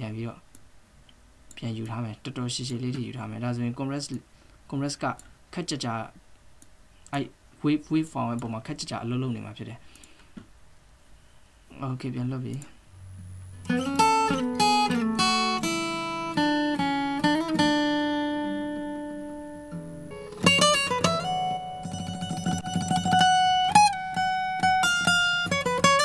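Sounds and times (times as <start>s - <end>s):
guitar strumming: 13.0s - 26.0s
acoustic guitar plucked notes: 13.2s - 26.0s.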